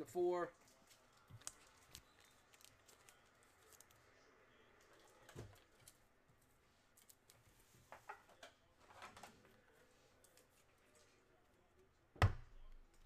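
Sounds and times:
faint clicks and handling noise: 0.5 - 12.0.

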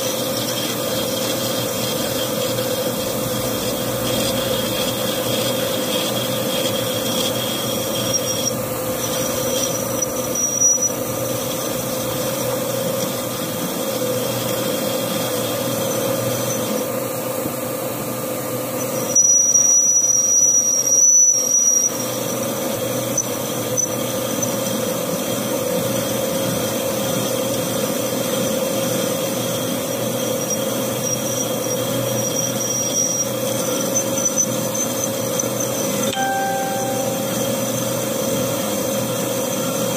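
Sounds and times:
metal lathe cutting with whine: 0.0 - 39.9.

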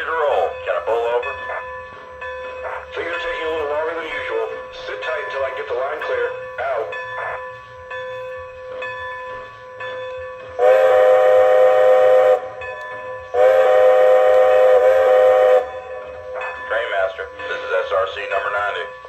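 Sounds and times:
chime steam whistle blasts: 9.5 - 17.4.

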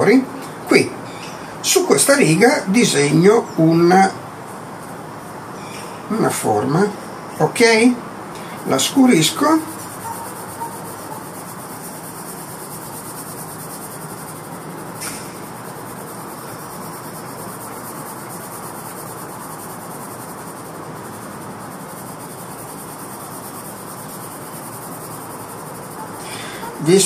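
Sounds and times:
pencil scratching on paper: 9.4 - 14.4.

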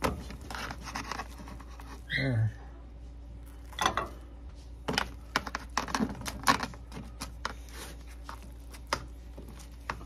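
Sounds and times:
spatula scraping foil pan: 0.0 - 2.1.

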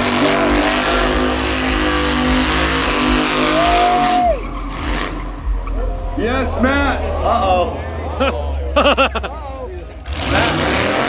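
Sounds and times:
car engine revving high: 0.0 - 11.0
tyres screeching: 0.3 - 8.0.

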